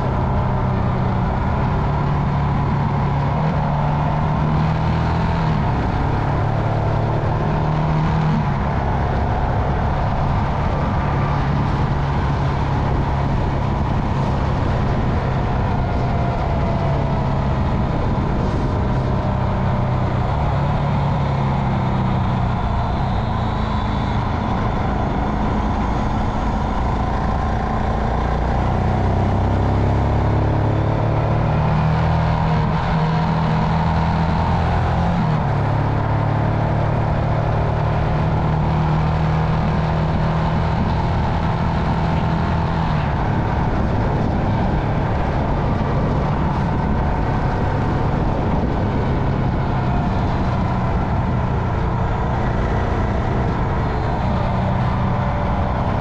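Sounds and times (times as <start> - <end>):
wind and road noise: 0.0 - 56.0
motorcycle engine running: 32.6 - 56.0.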